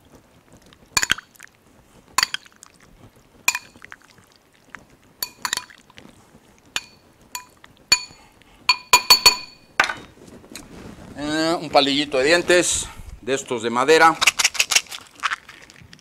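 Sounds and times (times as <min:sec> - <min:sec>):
spoon clinking against glass bowl: 0:03.5 - 0:03.8, 0:05.2 - 0:05.7, 0:06.8 - 0:10.0.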